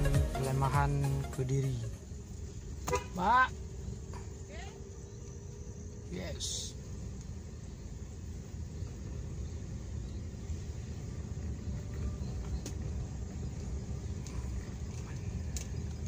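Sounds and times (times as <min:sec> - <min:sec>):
car engine and tyres rumbling: 0:00.0 - 0:16.0
faint clicks: 0:13.5 - 0:16.0.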